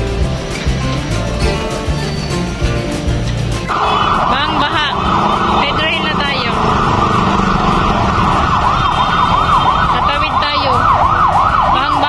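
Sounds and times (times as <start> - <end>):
street traffic noise: 0.0 - 12.0
ambulance siren yelping: 3.7 - 12.0.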